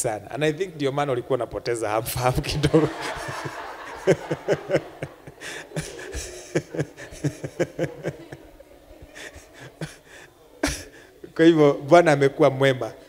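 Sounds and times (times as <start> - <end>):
congregation laughing: 2.2 - 11.2.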